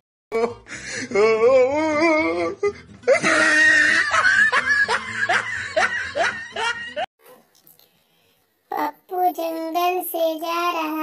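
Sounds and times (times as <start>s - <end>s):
comedic laughter: 3.0s - 7.1s.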